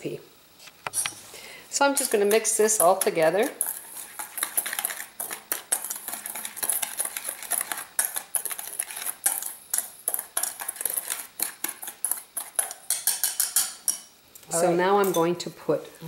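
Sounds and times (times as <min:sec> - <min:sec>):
whisk clicking against metal bowl: 0:02.0 - 0:14.1.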